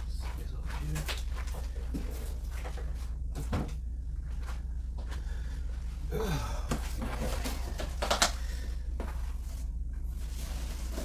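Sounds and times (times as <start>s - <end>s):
steady low hum: 0.0s - 11.0s
cardboard packing rustling: 6.7s - 8.3s, 9.0s - 11.0s.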